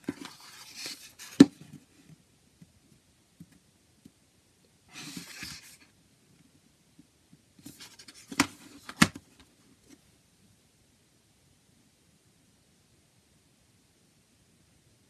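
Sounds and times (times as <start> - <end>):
cardboard case scraping rustle: 4.9 - 5.8.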